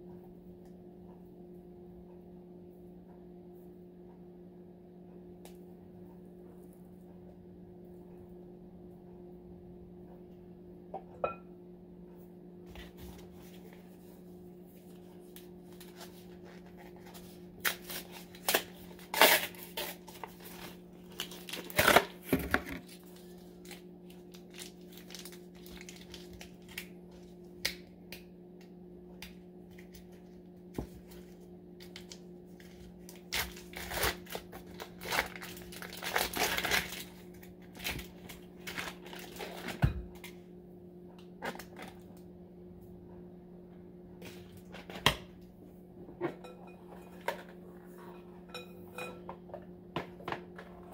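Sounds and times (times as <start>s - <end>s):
steady low hum: 0.0s - 50.9s
foil crinkling and tearing: 15.7s - 27.3s, 31.8s - 39.8s.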